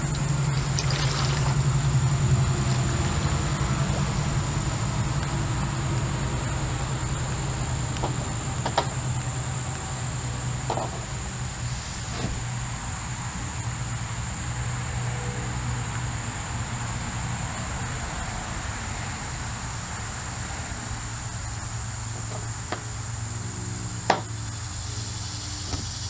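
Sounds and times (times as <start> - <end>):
high-pitched insect drone: 12.6 - 26.0.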